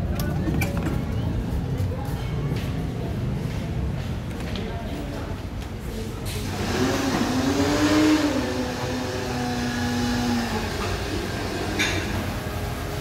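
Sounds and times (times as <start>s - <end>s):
vehicle engine revving: 6.4s - 11.8s.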